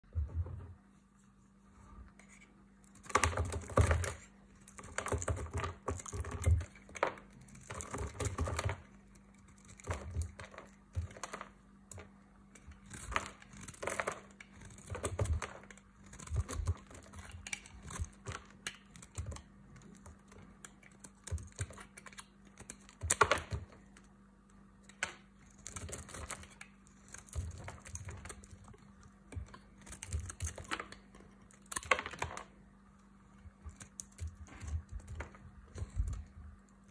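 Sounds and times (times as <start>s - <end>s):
faint steady hum: 0.0s - 36.9s
knife scraping soap: 2.0s - 24.0s, 24.8s - 32.3s.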